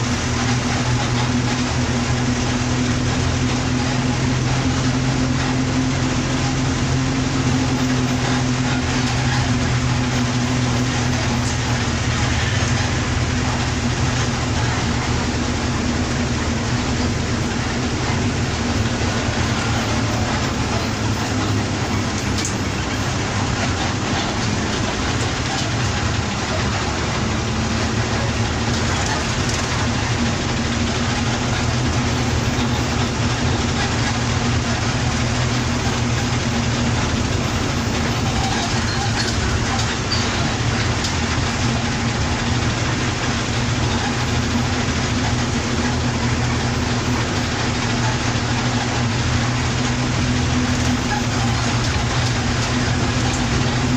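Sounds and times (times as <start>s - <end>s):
bus engine running: 0.0s - 53.9s
road and wind noise: 0.0s - 53.9s.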